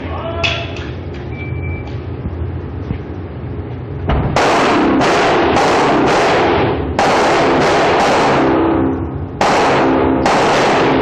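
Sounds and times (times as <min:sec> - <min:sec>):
pistol shots ringing: 0:04.3 - 0:11.0.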